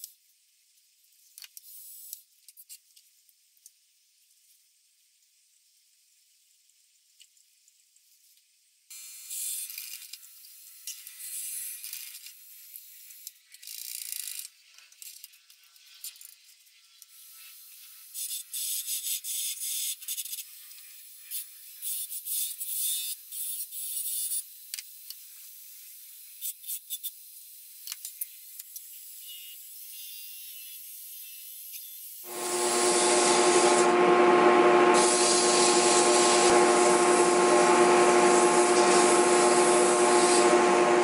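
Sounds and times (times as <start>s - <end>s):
lathe tool scraping wood: 32.3s - 41.0s.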